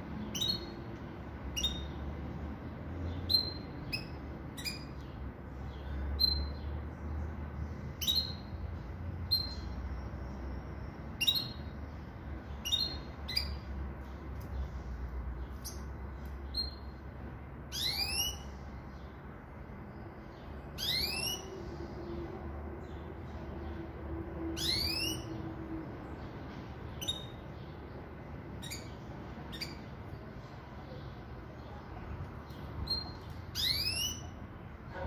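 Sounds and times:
bird chirping: 0:00.0 - 0:35.0
bird twittering: 0:01.5 - 0:02.0, 0:03.2 - 0:05.1, 0:11.2 - 0:11.7, 0:17.7 - 0:18.6, 0:20.8 - 0:21.6, 0:24.6 - 0:25.4, 0:27.0 - 0:27.7, 0:28.6 - 0:29.9, 0:32.8 - 0:34.4.

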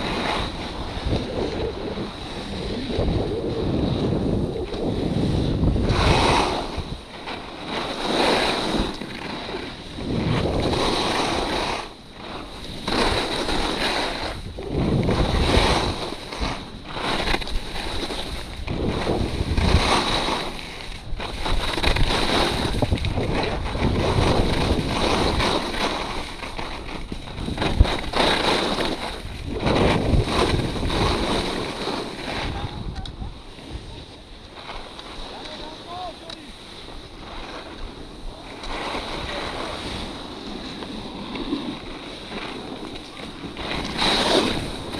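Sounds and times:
wind on microphone: 0:00.0 - 0:07.2, 0:08.5 - 0:11.9, 0:12.5 - 0:35.3
skis scraping over snow: 0:00.0 - 0:44.9.

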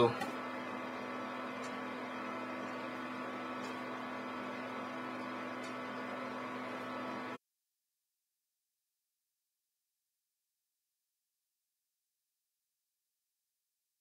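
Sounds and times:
electrical hum: 0:00.0 - 0:07.4
faint tick: 0:05.5 - 0:05.9.

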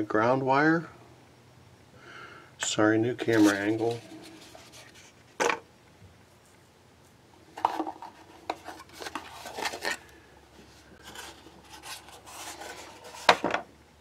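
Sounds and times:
soft handling noise: 0:02.6 - 0:13.7.

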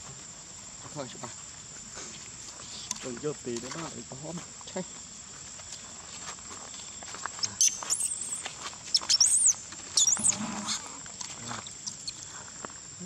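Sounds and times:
baby monkey squealing: 0:07.5 - 0:10.9, 0:11.6 - 0:12.2.

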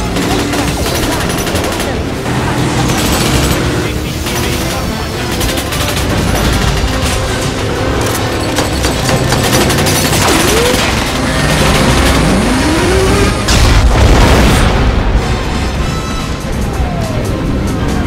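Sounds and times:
action film music: 0:00.0 - 0:18.0
loud blast: 0:12.5 - 0:16.3.

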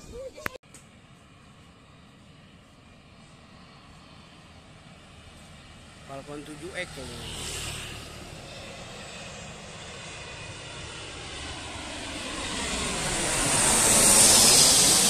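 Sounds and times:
jet passing low overhead: 0:00.0 - 0:15.0
high jet whine falling in pitch: 0:08.4 - 0:15.0.

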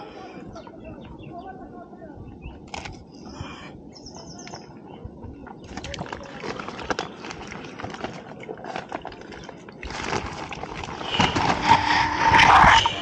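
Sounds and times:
fishing net rustling and clicking: 0:05.7 - 0:11.6.

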